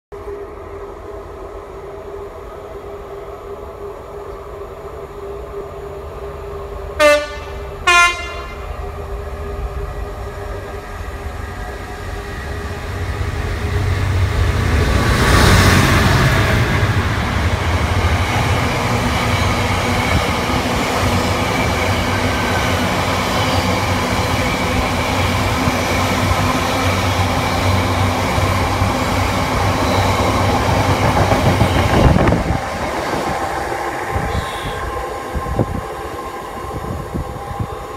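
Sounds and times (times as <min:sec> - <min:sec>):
diesel locomotive passing: 0:00.1 - 0:37.9
train rumble and wheel clatter: 0:00.1 - 0:37.9
locomotive horn blasts: 0:07.0 - 0:08.7, 0:34.2 - 0:35.0.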